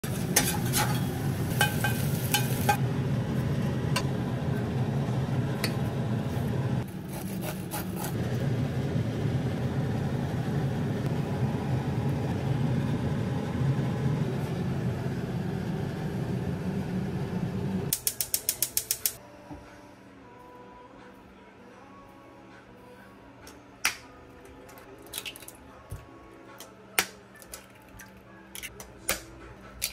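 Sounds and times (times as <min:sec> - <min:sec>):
metal spatula scraping a pan: 0:00.1 - 0:02.8
low rumble of gas range: 0:00.1 - 0:06.9, 0:08.2 - 0:17.9.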